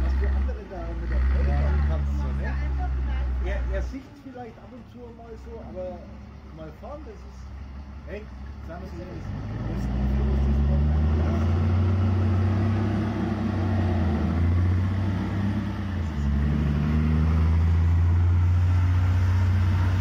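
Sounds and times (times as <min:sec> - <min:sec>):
dump truck diesel engine: 0:00.0 - 0:20.0.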